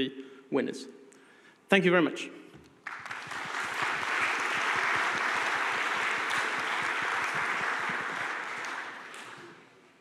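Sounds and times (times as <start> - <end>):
audience applauding: 2.8 - 9.8.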